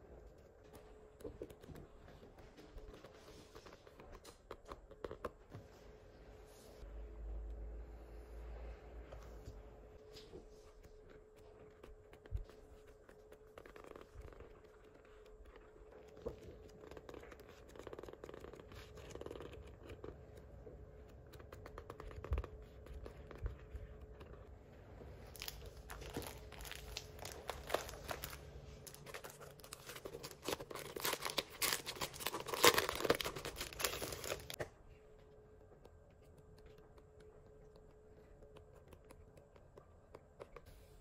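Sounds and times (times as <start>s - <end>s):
paper sheets rustling: 25.3s - 34.6s
stiff paper crinkling: 25.3s - 34.6s.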